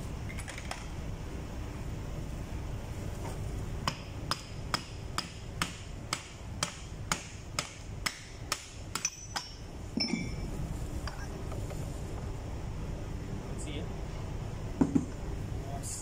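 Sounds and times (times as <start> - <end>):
ringing metal clink: 9.0 - 10.4.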